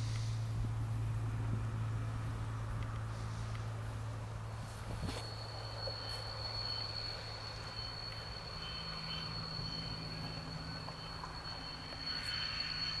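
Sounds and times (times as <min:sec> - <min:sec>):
diesel locomotive engine humming: 0:00.0 - 0:13.0
steady high whistle: 0:05.0 - 0:13.0.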